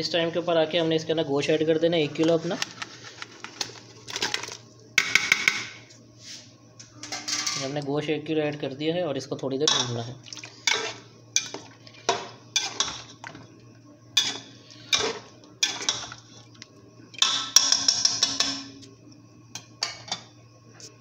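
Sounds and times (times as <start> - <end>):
metal ladle scraping a pot: 10.6 - 13.2, 14.2 - 16.2.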